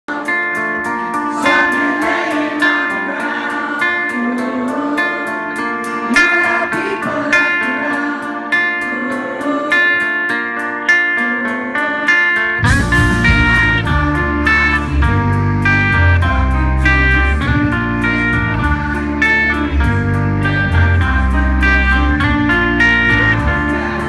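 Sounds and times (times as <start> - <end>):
electric guitars ringing: 0.1 - 24.0
person singing: 0.1 - 24.0
steady drum beat: 12.6 - 14.1.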